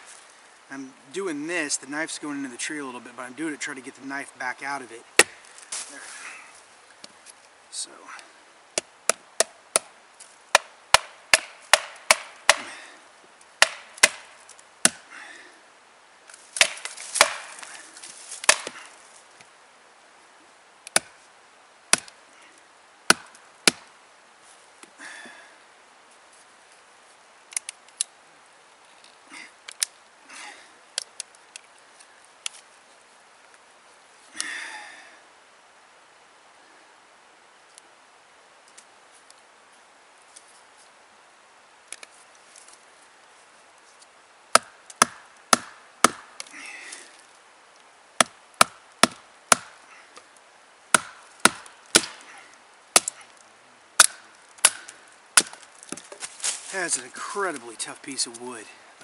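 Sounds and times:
wood splitting: 5.2s - 5.9s, 10.5s - 12.9s, 13.6s - 15.1s, 16.3s - 19.0s, 21.9s - 22.2s, 23.1s - 23.9s, 44.5s - 47.2s, 48.2s - 50.3s, 50.9s - 53.4s, 54.0s - 57.6s.

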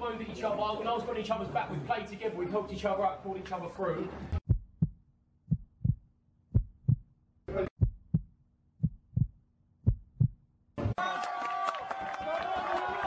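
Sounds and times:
heartbeat thumps: 4.3s - 7.1s, 7.7s - 10.4s.

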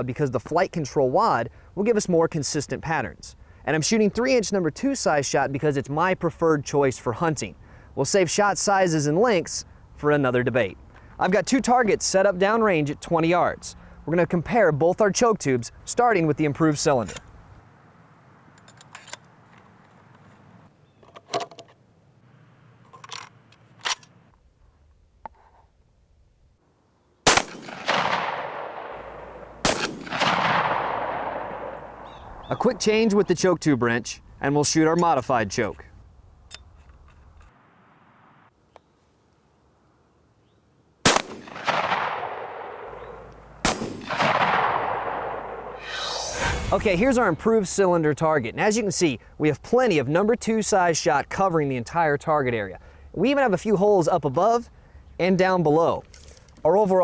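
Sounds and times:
shotgun shot with echo: 27.3s - 32.1s, 41.1s - 47.4s.

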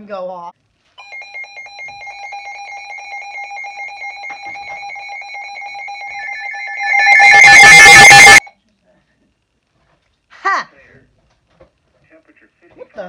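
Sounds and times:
steady high tone: 3.8s - 8.5s
fast-pulsing beep: 5.9s - 8.4s.

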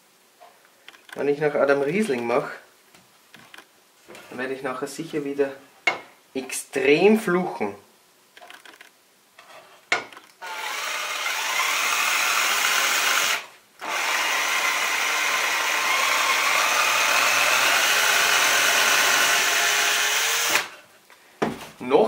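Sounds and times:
cordless drill boring wood: 10.4s - 20.8s.

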